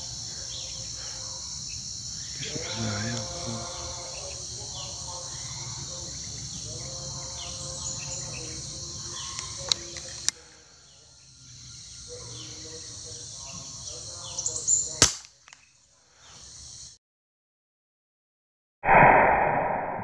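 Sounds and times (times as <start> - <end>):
high insect drone: 0.0 - 17.0
air rifle shot crack: 15.0 - 15.3.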